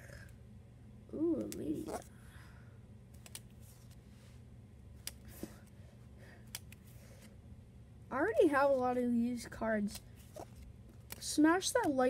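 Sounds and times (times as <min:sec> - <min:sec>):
trading cards clicking and rustling: 0:03.1 - 0:04.0, 0:09.8 - 0:12.0.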